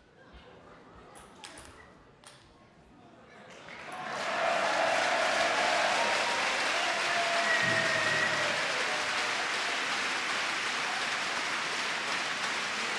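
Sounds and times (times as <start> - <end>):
crowd applauding: 3.5 - 12.9
faint cheers: 3.8 - 10.2.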